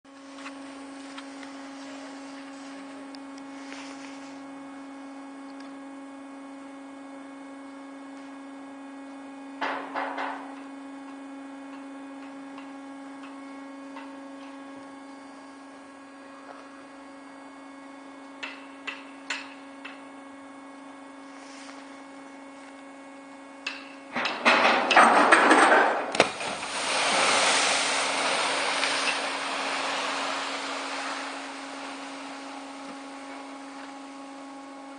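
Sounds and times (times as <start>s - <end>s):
steady hum: 0.1s - 34.9s
lifeboat sliding off ramp clattering: 24.2s - 33.5s
splash into water: 26.1s - 33.3s
churning water and spray: 26.1s - 34.5s.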